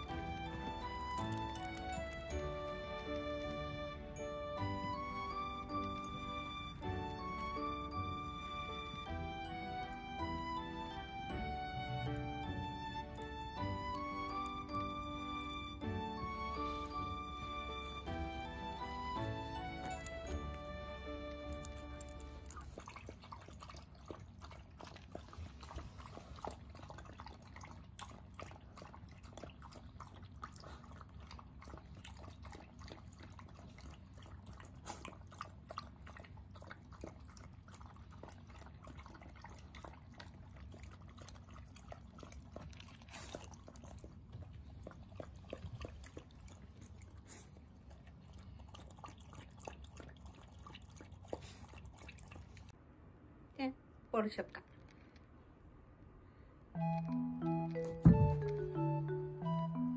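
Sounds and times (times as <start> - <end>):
dogs lapping water: 0.0 - 52.8.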